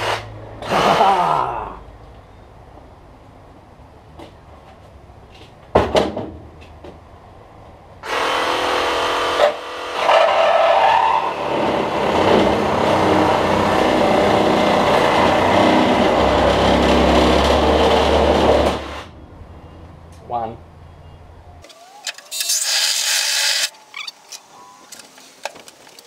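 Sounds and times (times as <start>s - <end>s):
reciprocating saw cutting plastic: 8.0s - 19.0s, 21.7s - 24.2s.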